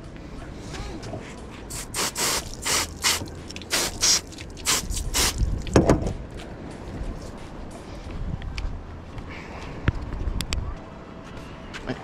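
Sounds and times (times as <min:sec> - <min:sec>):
hose nozzle spraying water: 0:01.7 - 0:05.4
thump: 0:05.8 - 0:06.2.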